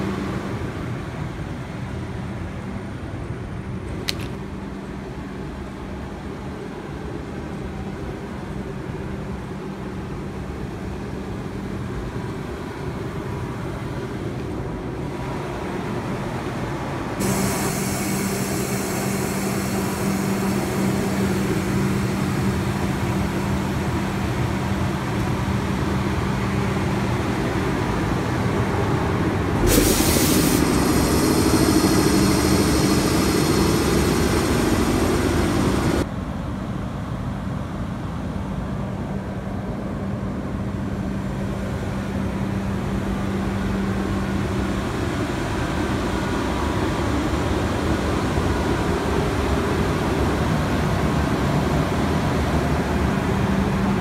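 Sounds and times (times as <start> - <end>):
locomotive electrical hum: 10.5 - 36.1
air hiss: 17.2 - 23.8, 29.6 - 36.0
loud drone: 17.2 - 24.8, 29.4 - 36.1.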